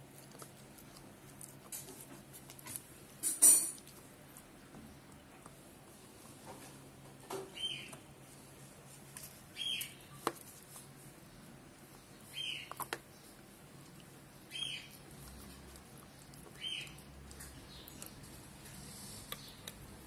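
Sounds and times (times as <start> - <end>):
puppy gnawing a bone: 0.0 - 6.4, 11.7 - 20.0
teeth clicking on bone: 12.5 - 13.1, 14.9 - 20.0.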